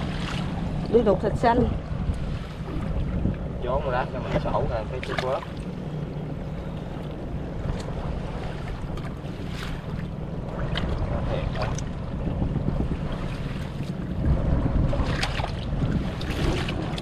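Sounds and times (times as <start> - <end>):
wind buffeting microphone: 0.0 - 17.0
water splashes and gear knocks: 4.1 - 5.8, 6.9 - 12.2, 13.0 - 17.0.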